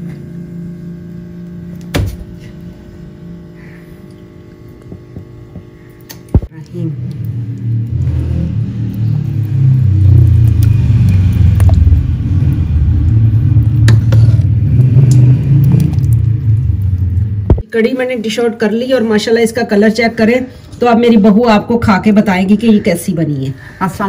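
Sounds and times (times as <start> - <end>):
faint steady hum: 0.0 - 14.6
loud low rumble: 6.4 - 17.6.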